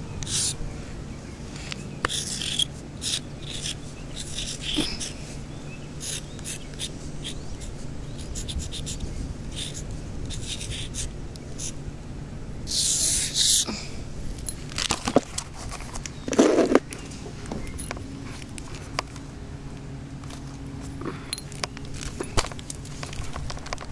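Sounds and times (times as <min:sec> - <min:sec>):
chalk scratching on pavement: 0:00.2 - 0:00.6, 0:02.0 - 0:05.3, 0:06.0 - 0:11.8, 0:12.7 - 0:13.7.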